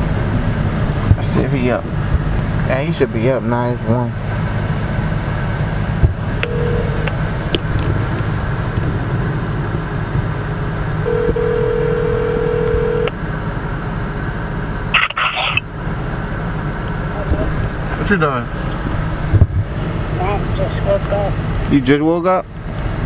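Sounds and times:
car cabin rumble: 0:05.6 - 0:13.2
telephone ringback tone: 0:06.4 - 0:07.2, 0:11.1 - 0:13.1.

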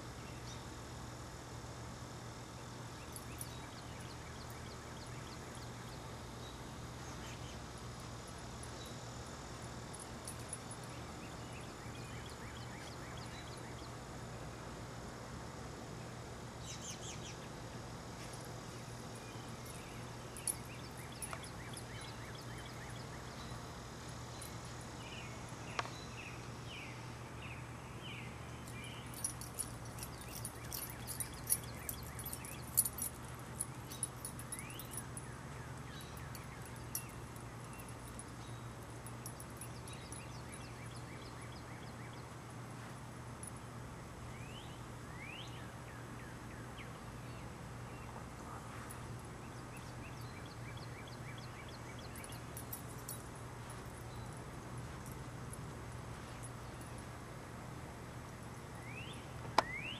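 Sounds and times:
steady low hum: 0:00.0 - 0:59.9
birds chirping and whistling: 0:58.9 - 0:59.9.

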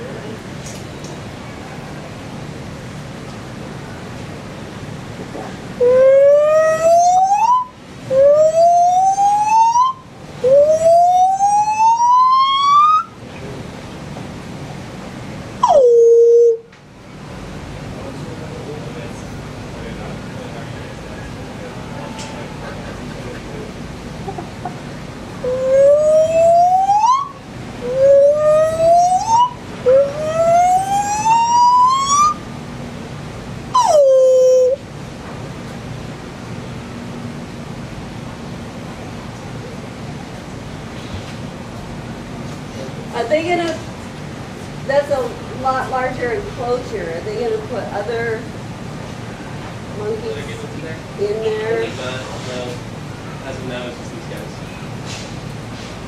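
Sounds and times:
gibbon whooping: 0:05.8 - 0:13.1, 0:15.6 - 0:16.7, 0:25.4 - 0:32.4, 0:33.8 - 0:34.8.

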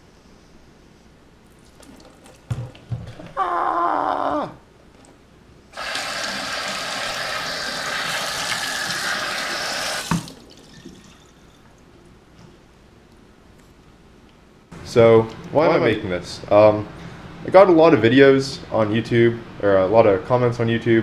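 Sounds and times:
faucet running over hand: 0:05.7 - 0:11.2.

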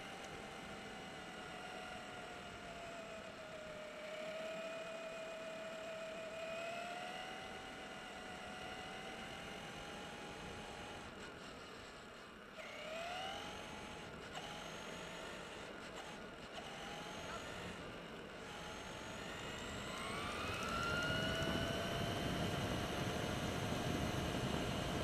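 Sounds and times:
electric motor whining: 0:12.6 - 0:25.0.

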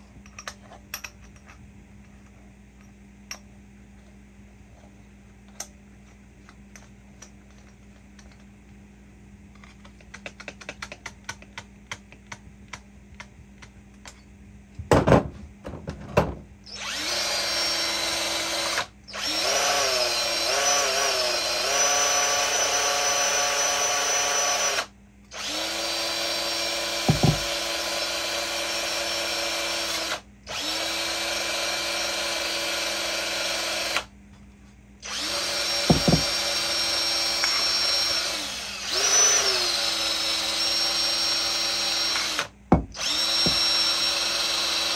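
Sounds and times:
cordless drill with wire brush: 0:16.7 - 0:34.1, 0:35.0 - 0:44.9
loud knocks: 0:27.1 - 0:27.5, 0:35.8 - 0:36.4.

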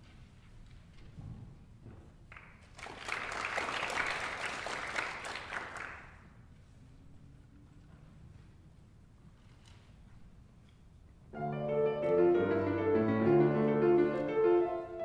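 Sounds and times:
audience applauding: 0:02.3 - 0:06.3.

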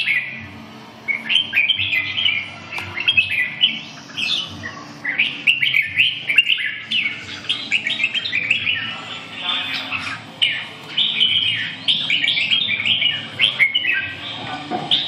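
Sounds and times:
birds chirping song: 0:00.0 - 0:15.0.

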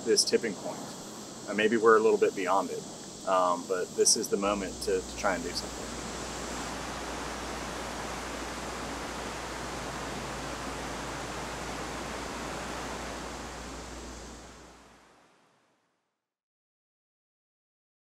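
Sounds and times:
choppy water: 0:00.0 - 0:15.4
wind rushing: 0:04.4 - 0:15.3
deep rumble: 0:04.6 - 0:15.0.

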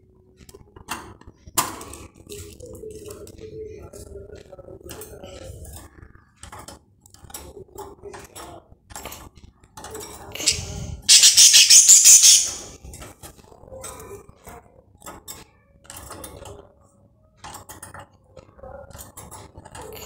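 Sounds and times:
budgerigars squawking: 0:10.4 - 0:12.7
clicks and rattles on cage bars: 0:15.0 - 0:16.5, 0:17.4 - 0:18.2.

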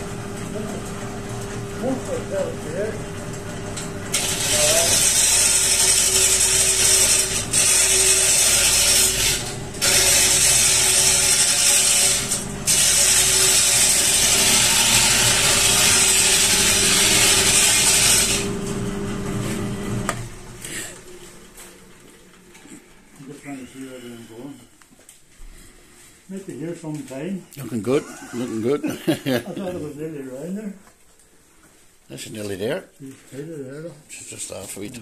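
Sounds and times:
lathe tool cutting wood: 0:00.0 - 0:20.5
lathe motor humming: 0:00.0 - 0:21.5.

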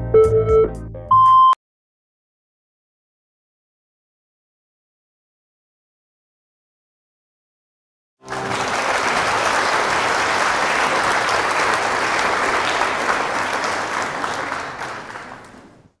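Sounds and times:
crowd applauding: 0:08.2 - 0:16.0.

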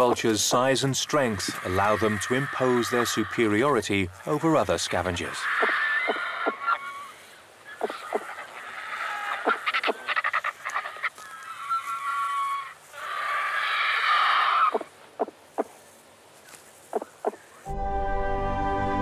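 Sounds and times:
vultures hissing: 0:00.0 - 0:04.4, 0:05.0 - 0:15.7.

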